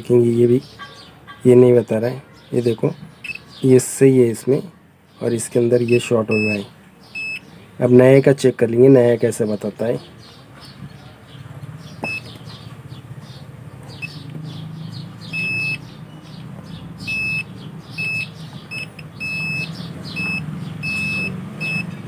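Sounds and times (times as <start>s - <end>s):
multimeter continuity beeps: 3.2s - 3.5s, 5.8s - 7.5s, 12.0s - 12.4s, 14.0s - 14.2s, 15.3s - 15.9s, 17.0s - 22.0s.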